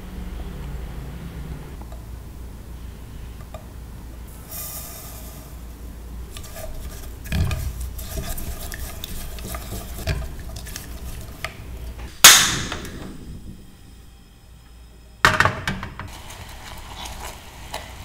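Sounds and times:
gas burner hiss: 3.0 - 14.3, 16.0 - 18.0
spatula stirring in saucepan: 4.4 - 12.1, 16.1 - 18.0.

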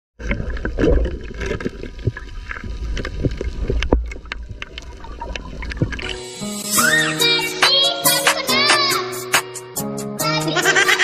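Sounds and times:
sharp underwater clicks and knocks: 0.2 - 6.2
underwater rumble of moving water: 0.2 - 6.2.

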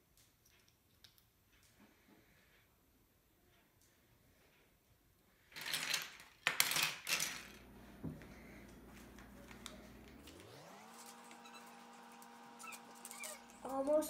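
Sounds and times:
plastic bricks clattering: 5.5 - 7.7.

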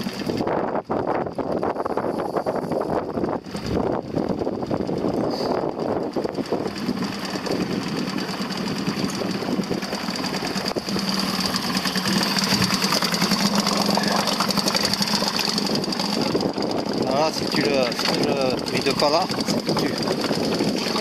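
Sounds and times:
outboard motor running: 0.0 - 21.0.

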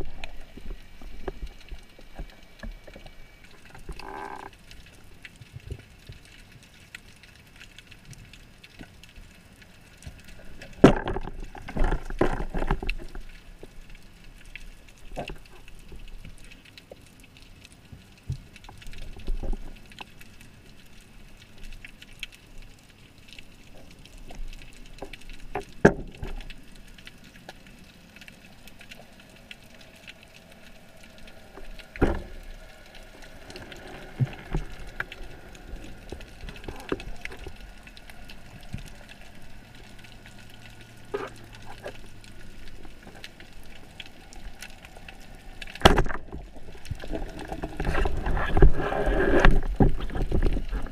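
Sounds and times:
faint underwater hiss: 26.2 - 50.9.

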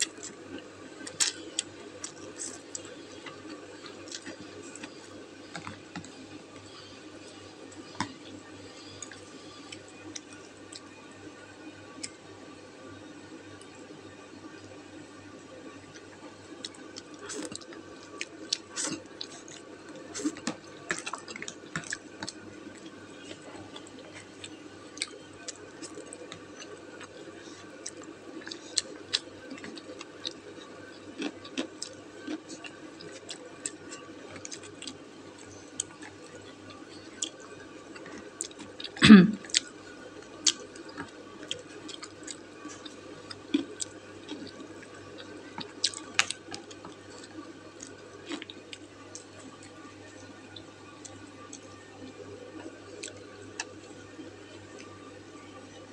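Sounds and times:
faint steady hum: 0.0 - 55.9
person chewing and slurping: 16.7 - 39.8, 40.4 - 49.4.

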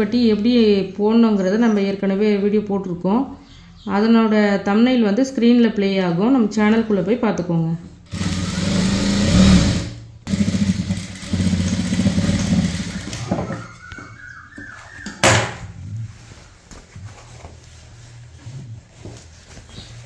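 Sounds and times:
electric sewing machine stitching: 8.1 - 13.6.

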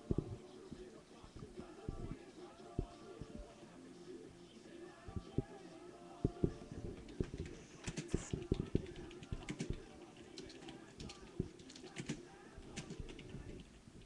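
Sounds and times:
keyboard typing: 6.3 - 13.8.

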